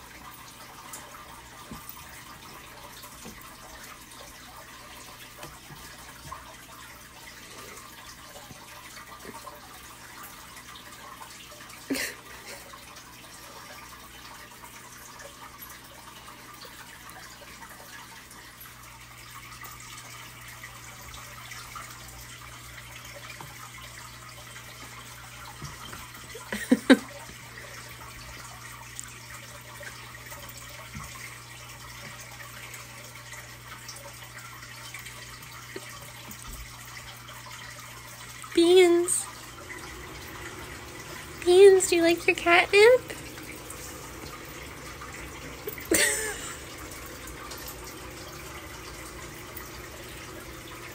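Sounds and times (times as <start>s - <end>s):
low steady hum: 18.6s - 50.9s.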